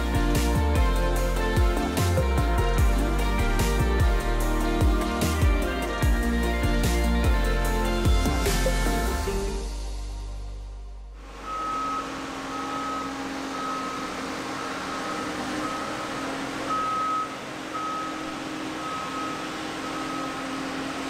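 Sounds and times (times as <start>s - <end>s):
vehicle engine running: 0.0s - 21.0s
reversing alarm beeping: 11.2s - 21.0s.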